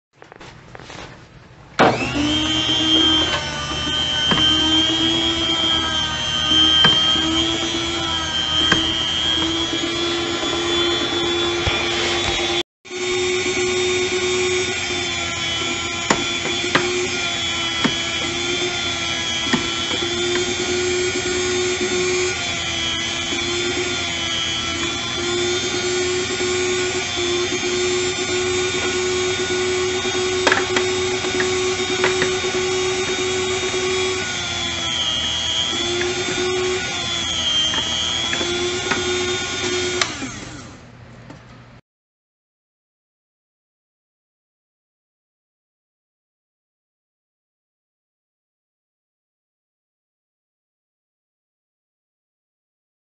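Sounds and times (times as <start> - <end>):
food slicer motor humming: 1.8 - 40.9.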